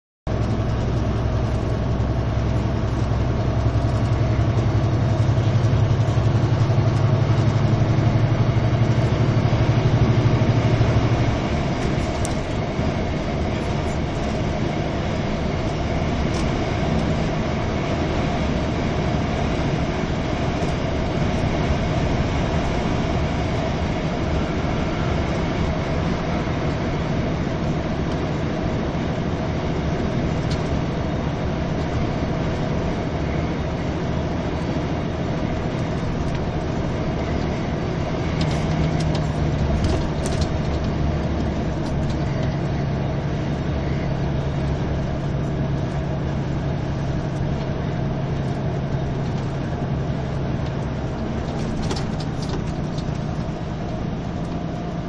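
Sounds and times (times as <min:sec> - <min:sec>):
tyre road noise: 0:00.3 - 0:55.0
vehicle engine hum: 0:00.3 - 0:55.0.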